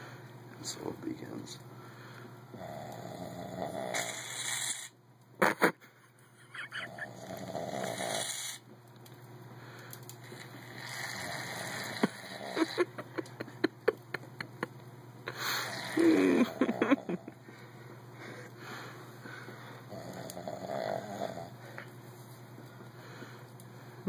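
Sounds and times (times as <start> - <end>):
man snoring: 2.5 - 4.9, 6.9 - 8.6, 10.4 - 13.0, 15.4 - 17.3, 19.9 - 21.6.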